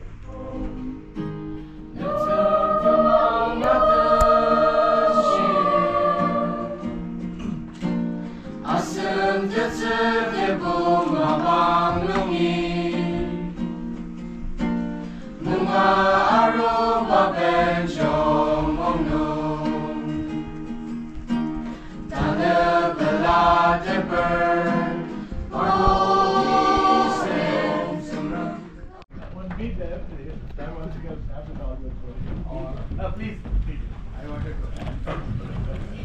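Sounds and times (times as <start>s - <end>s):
mixed choir singing: 0.0s - 7.6s, 8.6s - 13.8s, 15.4s - 20.4s, 22.0s - 28.8s
sustained accompaniment: 1.9s - 7.3s, 22.1s - 28.8s.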